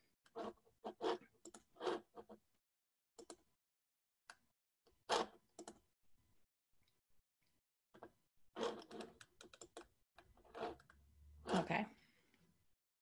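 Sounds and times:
keyboard and mouse clicks: 1.4s - 1.7s, 3.2s - 3.5s, 5.6s - 5.8s, 8.0s - 9.9s.

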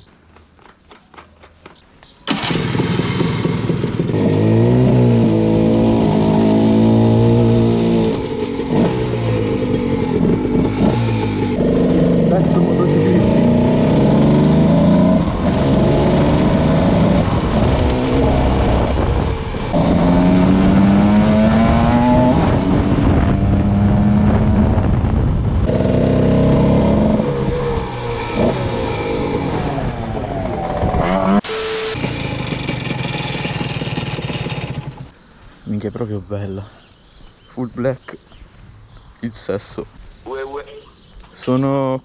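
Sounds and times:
motorcycle engine accelerating: 2.2s - 35.2s
short burst of noise: 31.2s - 32.2s.

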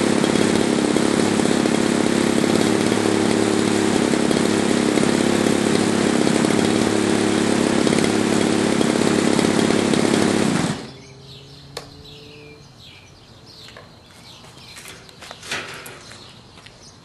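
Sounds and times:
model airplane engine running: 0.0s - 10.9s
propeller winding down: 0.0s - 12.2s.

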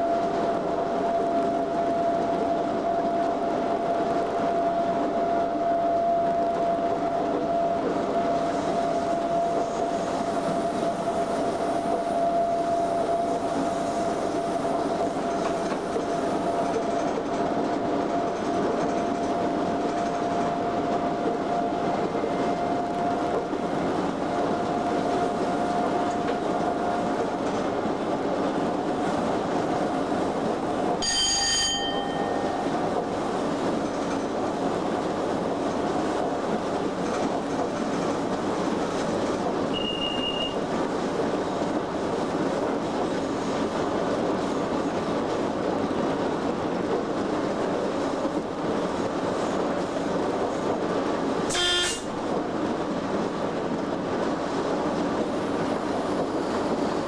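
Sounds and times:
rumble of wheels on rail: 0.0s - 57.0s
short high beep: 39.7s - 40.6s.

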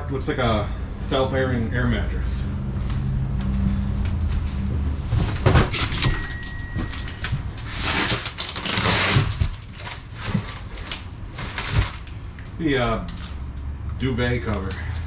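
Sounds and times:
low hum: 2.4s - 11.5s
cardboard scraping and rustling: 4.4s - 12.2s.

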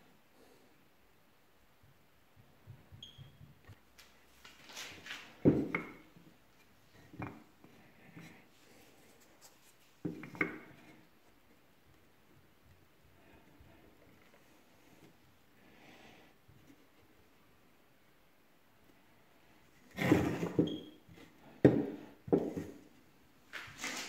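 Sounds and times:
wood rubbing and tapping: 3.6s - 8.4s, 9.2s - 11.6s, 21.6s - 24.0s.

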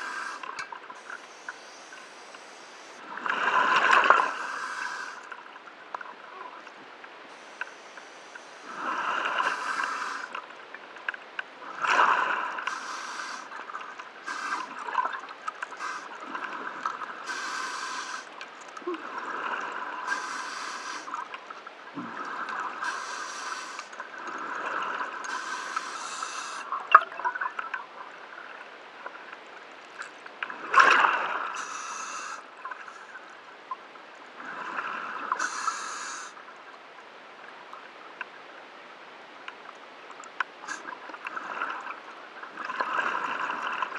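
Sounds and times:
regulator hissing inhale: 0.0s - 3.0s, 4.2s - 5.3s, 7.3s - 10.4s, 12.6s - 13.6s, 14.2s - 14.8s, 15.7s - 16.2s, 17.2s - 18.3s, 20.0s - 21.2s, 22.8s - 24.0s, 25.3s - 26.7s, 31.6s - 33.1s, 35.4s - 36.4s.

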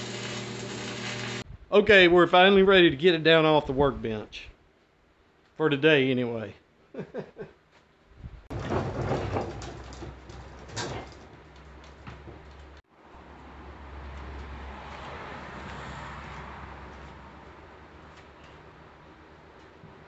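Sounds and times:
metal frame clanking and scraping: 8.5s - 12.5s.

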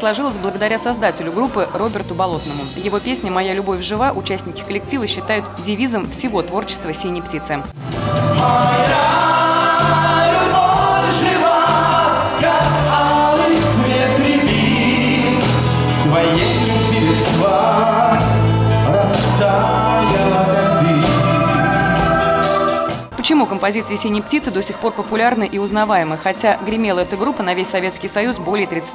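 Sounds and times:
pop band playing: 0.0s - 28.9s
men singing: 7.8s - 23.0s.

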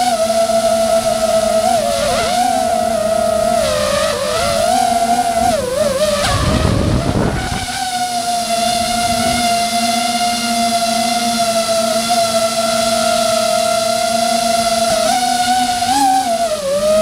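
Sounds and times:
drone motors whining: 0.0s - 17.0s
rushing wind noise: 5.4s - 8.0s, 8.8s - 9.5s.

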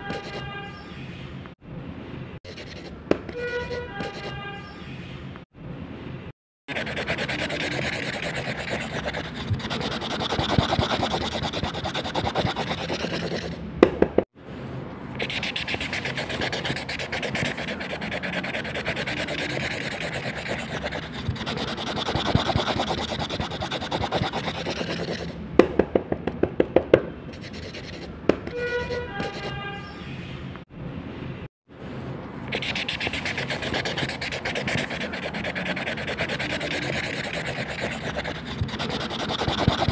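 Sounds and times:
pen scratching on paper: 0.0s - 0.5s, 2.5s - 4.4s, 6.7s - 13.6s, 15.2s - 25.4s, 27.3s - 29.6s, 32.5s - 39.9s.

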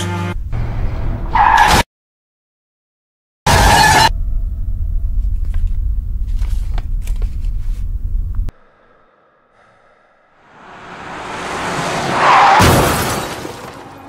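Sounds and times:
deep steady rumble: 4.1s - 10.5s.

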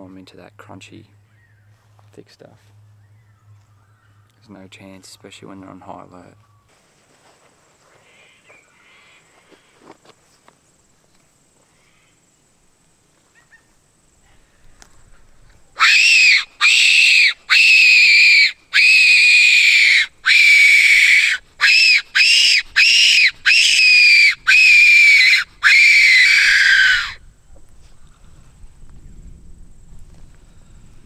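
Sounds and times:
fox whistle squeals: 15.8s - 27.2s.

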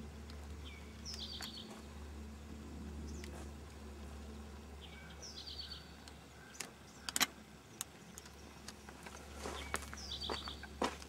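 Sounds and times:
low steady hum: 0.0s - 11.0s
songbird singing: 0.0s - 11.0s
sharp clicks: 6.0s - 9.2s.

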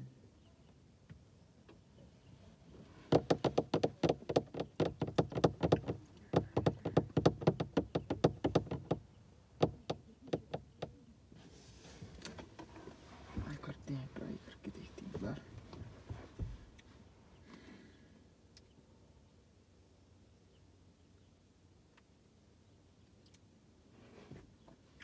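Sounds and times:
sharp close tapping: 3.1s - 9.0s.

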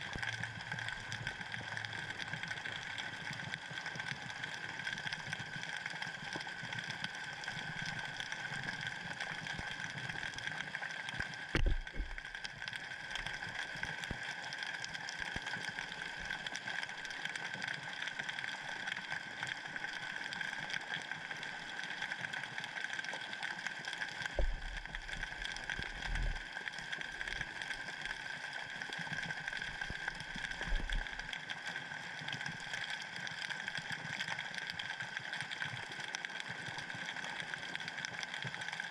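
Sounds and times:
low underwater thumps: 11.6s - 12.2s, 24.4s - 25.2s.

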